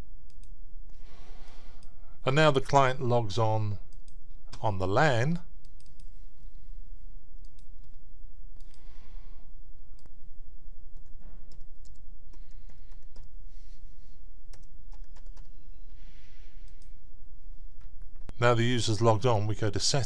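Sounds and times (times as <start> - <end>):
low hum: 0.0 - 20.0
mouse clicks: 5.6 - 6.1
typing on keyboard: 11.0 - 13.3, 14.5 - 15.6.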